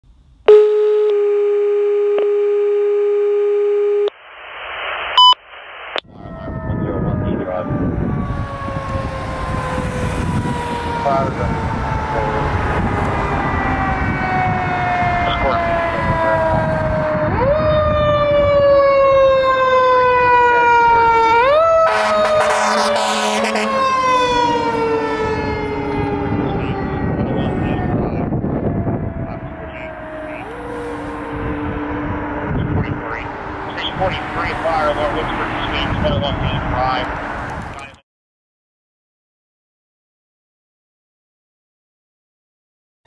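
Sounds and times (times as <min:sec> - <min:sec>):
fire engine siren wailing: 0:00.5 - 0:04.1, 0:06.0 - 0:38.0
two-tone radio alert: 0:00.5 - 0:07.7, 0:32.6 - 0:37.0
radio hiss: 0:04.1 - 0:06.0, 0:32.8 - 0:36.8
short high beep: 0:05.2 - 0:05.4
low rumble: 0:25.2 - 0:38.0.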